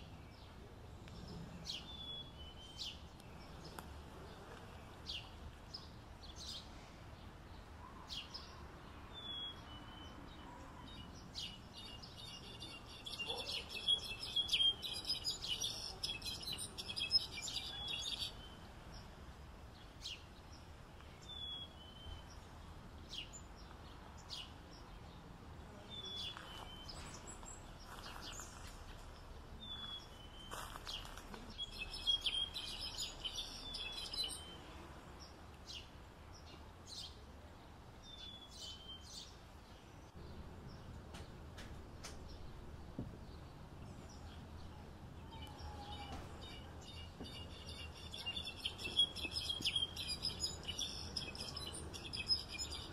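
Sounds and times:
faint background noise: 0:00.0 - 0:52.9
goldfinch twittering song: 0:29.7 - 0:34.6, 0:45.4 - 0:52.9.

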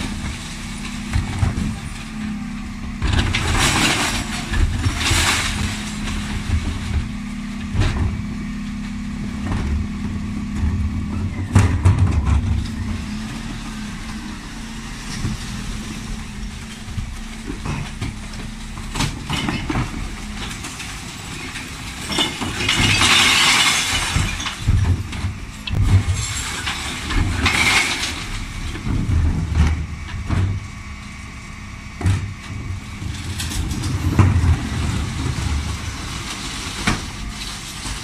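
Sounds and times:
refuse truck humming: 0:00.0 - 0:38.0
glass and cans crashing: 0:22.0 - 0:24.6.

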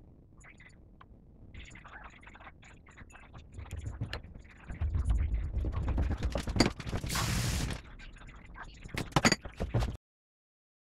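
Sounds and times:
hiss: 0:07.1 - 0:07.8.

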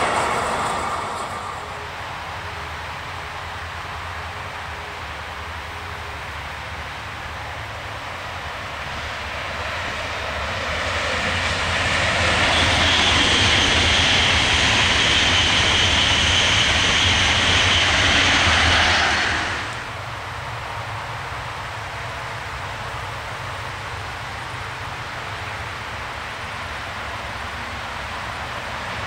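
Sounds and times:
train passing at speed: 0:00.0 - 0:29.0
high steady whine: 0:12.4 - 0:20.0.

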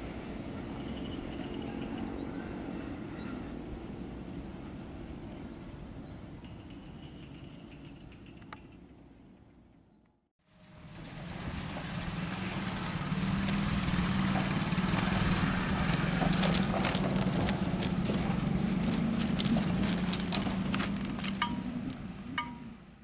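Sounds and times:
low engine hum: 0:00.0 - 0:08.2, 0:10.5 - 0:23.0
sharp clicks and rattles: 0:18.9 - 0:21.7.

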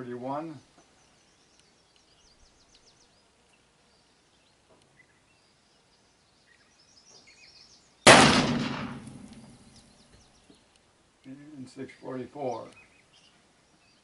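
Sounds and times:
small birds chirping: 0:00.0 - 0:08.1, 0:08.9 - 0:14.0
revolver gunshot: 0:08.1 - 0:09.6.

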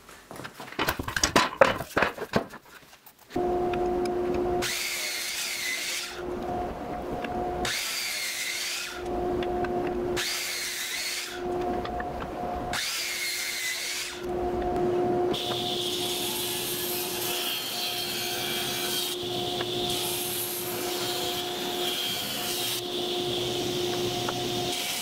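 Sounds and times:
saw blade cutting wood: 0:04.6 - 0:06.2, 0:07.6 - 0:09.1, 0:10.2 - 0:11.4, 0:12.7 - 0:14.3, 0:15.3 - 0:25.0.

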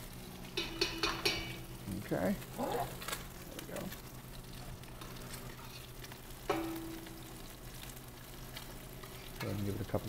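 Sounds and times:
fish sizzling in a pan: 0:00.0 - 0:10.0
utensil clinking against dish: 0:00.6 - 0:01.6.

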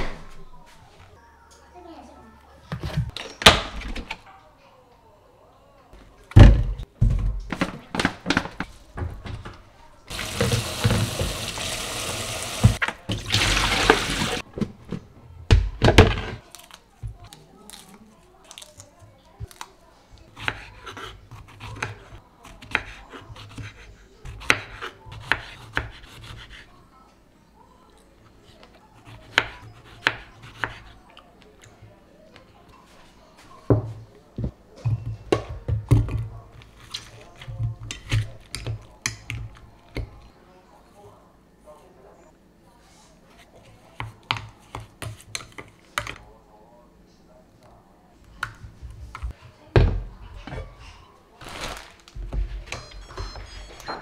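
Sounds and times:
tap water running into sink: 0:10.1 - 0:14.4.

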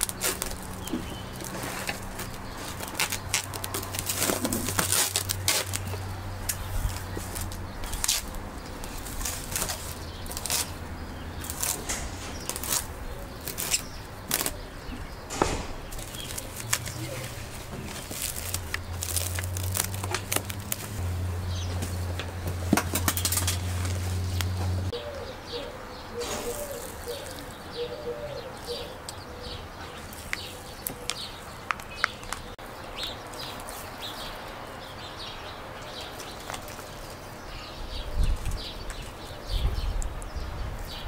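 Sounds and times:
cling film crinkling: 0:00.0 - 0:14.6, 0:15.3 - 0:21.2.

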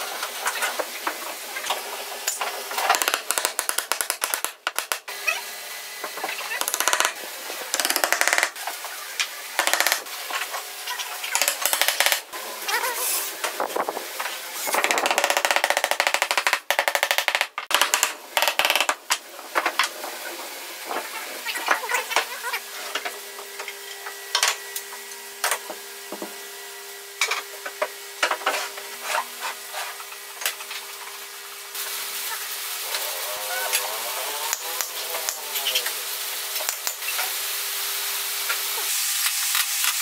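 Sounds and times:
wooden parts knocking together: 0:02.9 - 0:05.0, 0:06.6 - 0:07.1, 0:07.8 - 0:08.5, 0:11.4 - 0:12.2, 0:14.8 - 0:19.2.

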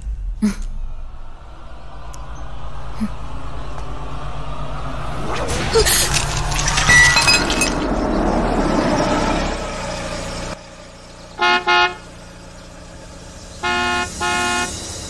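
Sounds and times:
van engine and tyre noise: 0:00.0 - 0:15.0
van horn honking: 0:11.3 - 0:12.2, 0:13.6 - 0:14.9.

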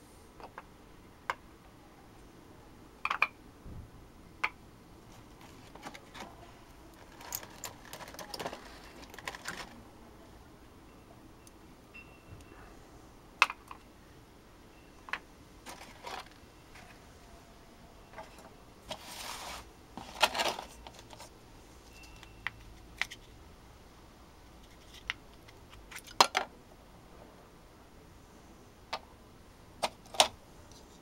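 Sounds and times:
scraping rustle: 0:05.1 - 0:09.8, 0:18.1 - 0:22.0.

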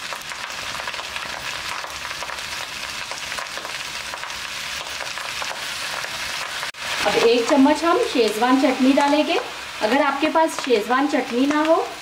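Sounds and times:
small crackles: 0:00.0 - 0:07.7
rice sizzling in a pan: 0:00.0 - 0:12.0.

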